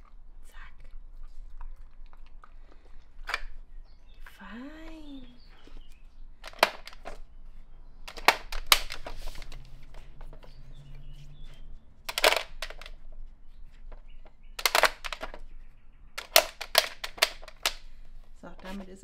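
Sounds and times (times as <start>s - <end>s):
plastic toy clattering on tile: 6.4s - 7.3s, 8.1s - 10.6s, 12.1s - 15.5s, 16.2s - 18.0s.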